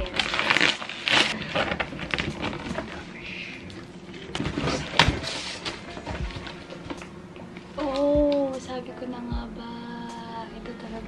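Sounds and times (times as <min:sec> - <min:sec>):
cardboard flaps rustling and scraping: 0:04.4 - 0:06.7.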